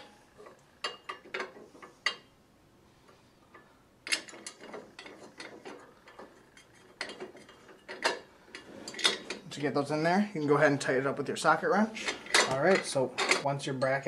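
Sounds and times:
metal bolts clicking and rattling: 0.0s - 2.3s, 3.5s - 9.7s, 12.0s - 14.0s.

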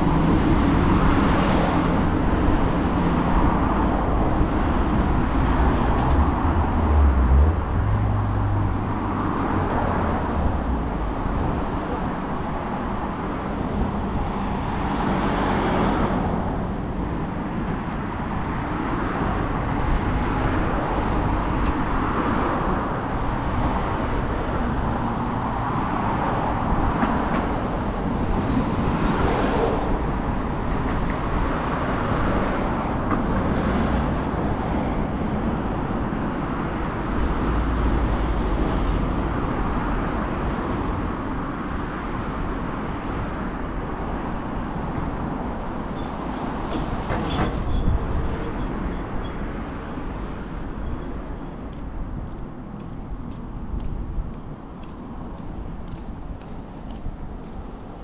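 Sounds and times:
heavy vehicle rumbling past: 0.0s - 12.0s
road traffic passing: 0.0s - 58.0s.

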